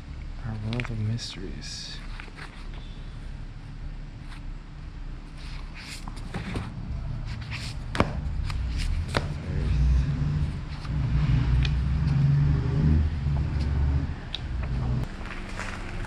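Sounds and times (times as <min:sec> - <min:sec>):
car engine rumbling: 0:00.0 - 0:16.0
book pages flipping: 0:02.0 - 0:02.9, 0:05.2 - 0:09.7, 0:10.4 - 0:12.2, 0:13.3 - 0:16.0.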